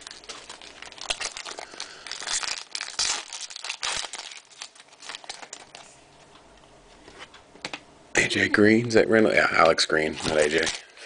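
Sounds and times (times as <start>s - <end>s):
card pack wrappers crinkling: 0.0s - 6.0s, 9.6s - 11.0s.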